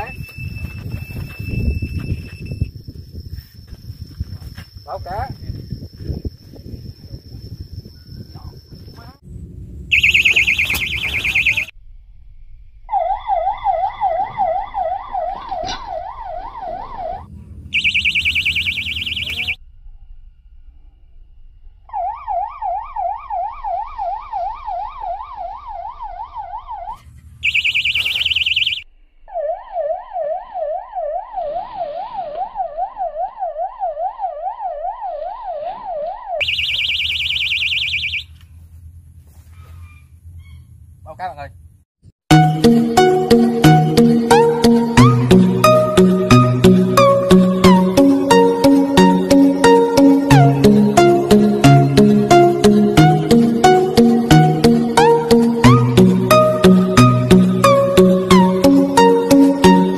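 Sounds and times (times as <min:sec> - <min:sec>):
electronic bite alarm siren: 0:00.0 - 0:03.4, 0:09.9 - 0:11.8, 0:12.9 - 0:20.0, 0:21.6 - 0:38.5, 0:42.3 - 0:59.9.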